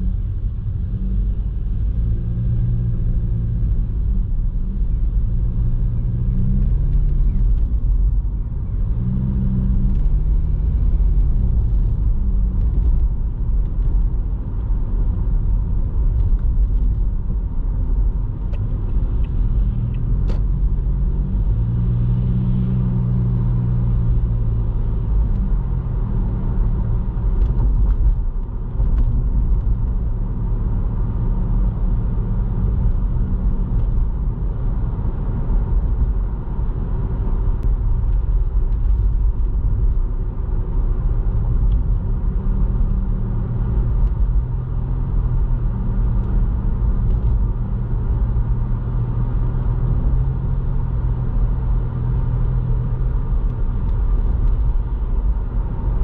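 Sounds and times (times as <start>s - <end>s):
car engine and road rumble: 0.0s - 56.0s.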